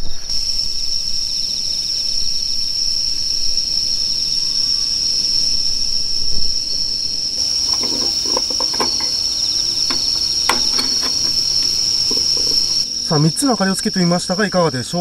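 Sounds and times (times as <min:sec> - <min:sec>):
insects trilling: 0:00.0 - 0:15.0
clicks and knocks of lantern: 0:07.4 - 0:12.8.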